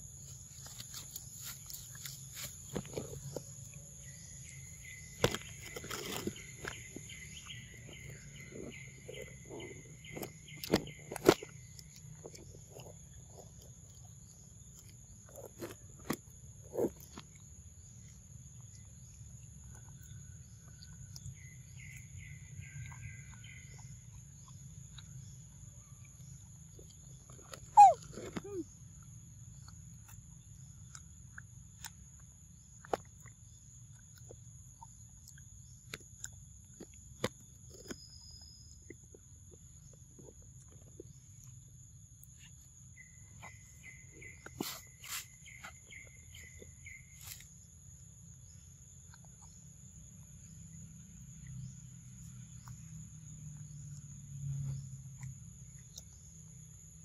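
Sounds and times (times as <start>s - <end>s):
insects droning: 0.0s - 57.0s
bird chirping: 0.1s - 16.0s, 16.7s - 32.8s, 37.4s - 57.0s
bird chirping short notes: 27.8s - 28.6s.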